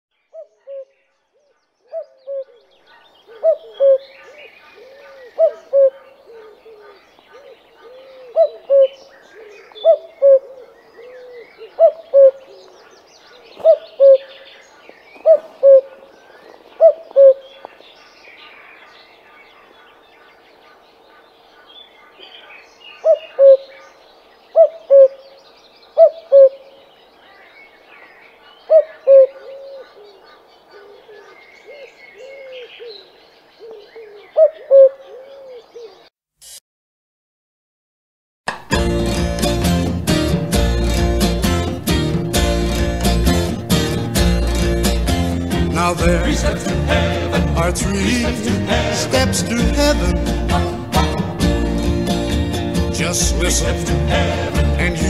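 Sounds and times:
faint bird chirping: 0.1s - 36.2s
cuckoo calling: 0.3s - 1.0s, 1.9s - 18.6s, 22.0s - 23.9s, 24.6s - 25.4s, 26.0s - 26.8s, 28.7s - 36.1s.

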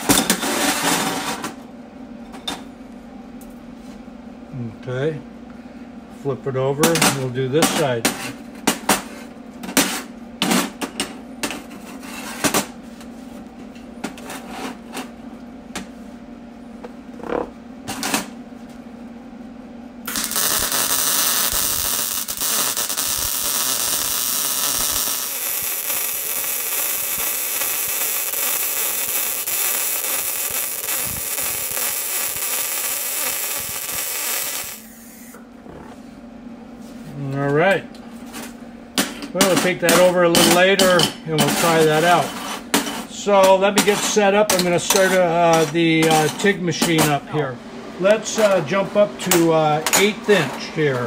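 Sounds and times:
welder arc crackling and hissing: 0.0s - 1.4s, 20.0s - 35.4s, 39.0s - 51.0s.

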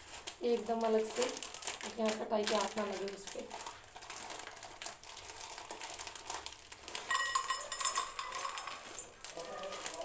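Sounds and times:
plastic bag crinkling: 0.0s - 10.0s
dry grains rattling into bowl: 6.9s - 9.2s
steel bowl ringing: 7.1s - 8.9s.

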